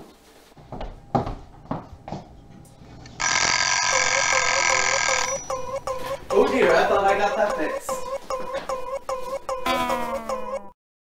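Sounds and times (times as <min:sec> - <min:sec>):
electronic warbling buzz: 0:03.2 - 0:06.5.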